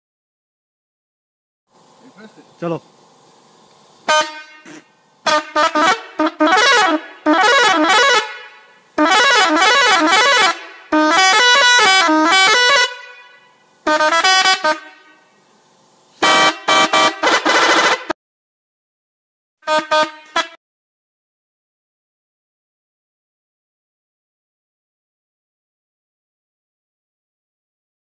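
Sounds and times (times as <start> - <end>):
musical horn bursts: 4.1 - 15.4, 16.2 - 18.2, 19.6 - 20.6.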